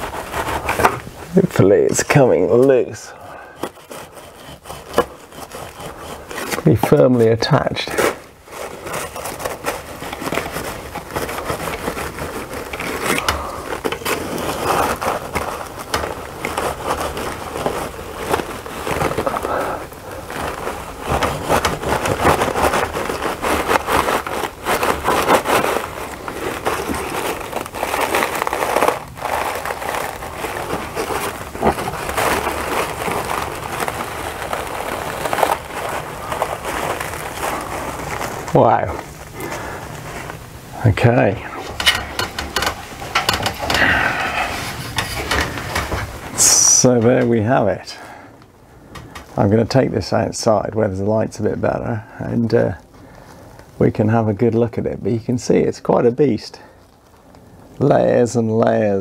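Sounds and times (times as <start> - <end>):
crackling and rustling of paper: 0.0 - 59.0
knife scraping wasp nest: 1.6 - 17.8.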